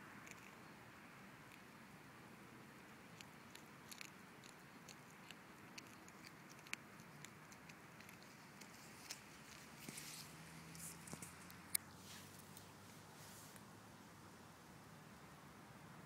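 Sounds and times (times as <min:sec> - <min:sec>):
cat crunching on prey: 0:02.8 - 0:11.6
bone snapping: 0:03.2 - 0:09.6.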